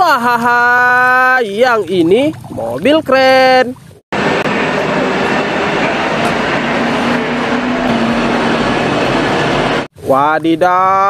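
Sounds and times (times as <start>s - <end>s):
diesel engine running: 4.1s - 9.9s.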